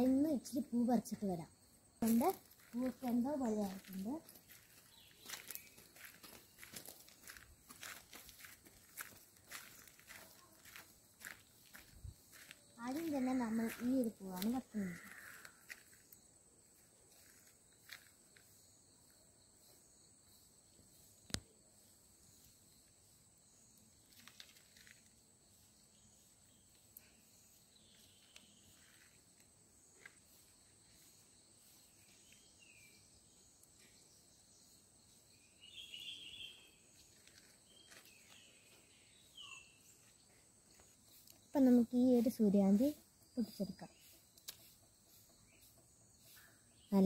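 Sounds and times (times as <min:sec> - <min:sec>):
high-pitched insect trill: 0:00.0 - 0:47.0.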